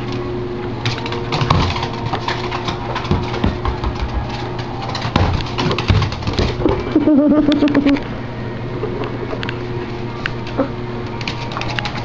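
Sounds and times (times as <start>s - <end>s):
steady low hum: 0.0s - 12.0s
ball thumping on floor: 3.1s - 4.3s.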